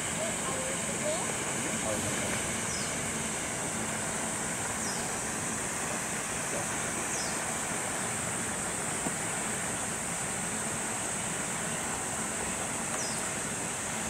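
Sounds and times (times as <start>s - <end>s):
steady rain hiss: 0.0s - 14.0s.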